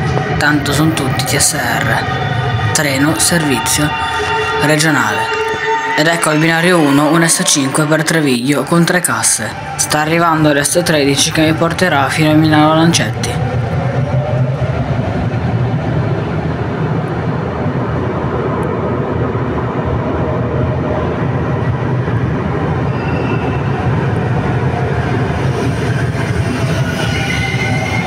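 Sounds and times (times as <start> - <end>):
train rumble: 0.0 - 28.0
high wheel or brake squeals: 22.9 - 23.8, 26.5 - 28.0.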